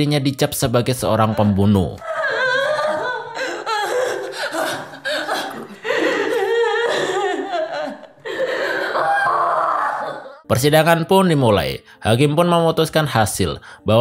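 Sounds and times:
woman crying and speaking: 0:01.2 - 0:09.4.

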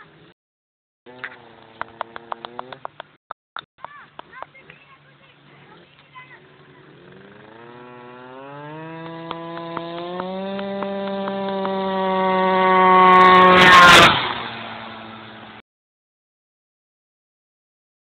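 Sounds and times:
scooter engine accelerating: 0:01.1 - 0:03.0, 0:04.5 - 0:15.6.

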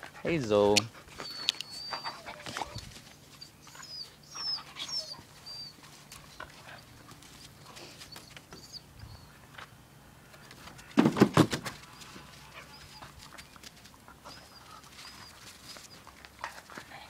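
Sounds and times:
dogs scuffling: 0:00.0 - 0:08.8, 0:10.4 - 0:17.0
dog squeaks: 0:01.2 - 0:05.8, 0:08.1 - 0:09.3.

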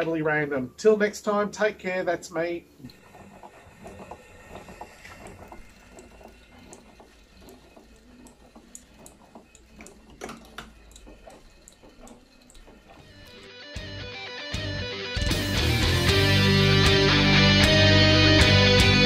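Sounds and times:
model locomotive gear clicking: 0:02.8 - 0:13.9.

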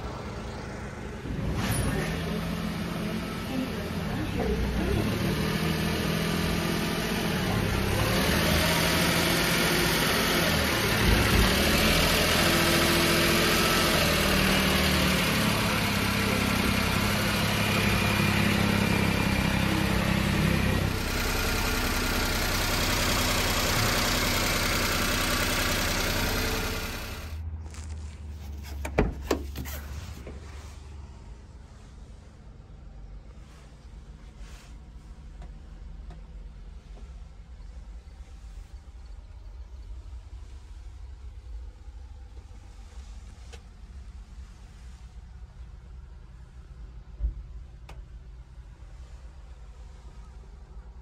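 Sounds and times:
truck engine running: 0:00.0 - 0:34.3.

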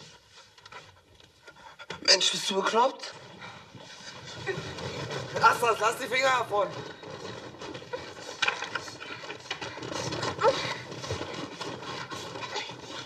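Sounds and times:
heavy breathing: 0:07.0 - 0:13.0.

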